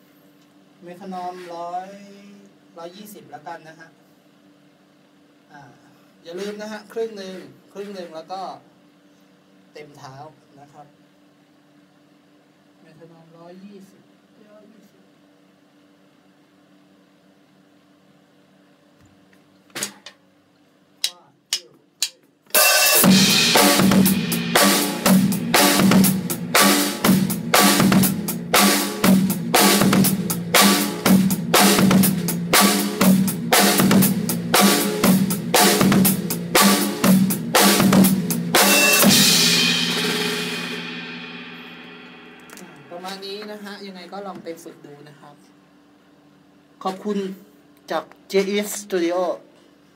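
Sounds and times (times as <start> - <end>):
drum kit playing a groove: 21.0 - 43.4
cymbal ringing out: 22.5 - 43.4.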